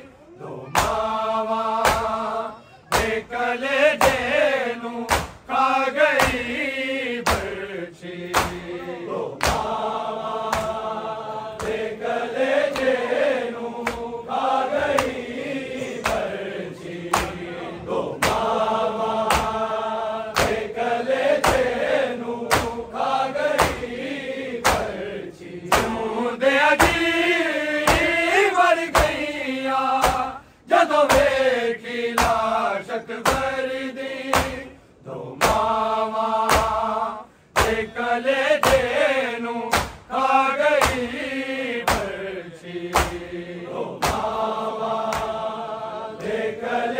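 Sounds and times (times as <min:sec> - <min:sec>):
men chanting in unison: 0:00.0 - 0:46.9
steady beat of sharp strikes: 0:01.8 - 0:02.2, 0:05.1 - 0:05.5, 0:06.2 - 0:06.6, 0:07.2 - 0:07.6, 0:08.3 - 0:08.8, 0:09.4 - 0:09.8, 0:18.2 - 0:19.7, 0:20.3 - 0:20.8, 0:21.4 - 0:21.8, 0:22.4 - 0:24.0, 0:24.6 - 0:25.0, 0:25.7 - 0:26.1, 0:26.8 - 0:27.2, 0:27.8 - 0:28.3, 0:28.9 - 0:29.2, 0:30.0 - 0:30.4, 0:33.2 - 0:33.6, 0:34.3 - 0:34.7, 0:35.4 - 0:35.8, 0:36.4 - 0:36.8, 0:37.5 - 0:37.9, 0:39.7 - 0:40.1, 0:40.8 - 0:41.2, 0:41.8 - 0:42.2, 0:42.9 - 0:43.4, 0:44.0 - 0:44.4.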